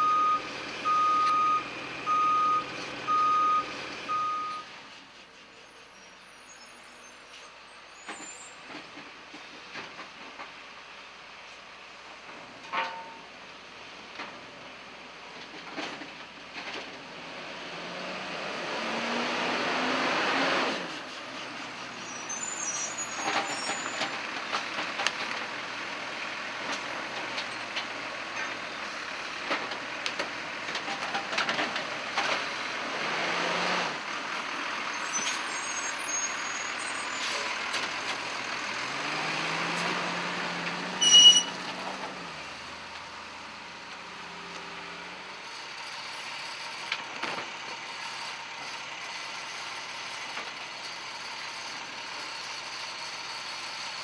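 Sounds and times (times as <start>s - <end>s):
knocks and clatter of cart: 8.1s - 10.6s, 15.3s - 17.0s, 23.2s - 25.6s, 29.4s - 32.5s
garbage truck engine revving: 17.1s - 21.6s, 30.4s - 35.0s, 36.8s - 45.5s.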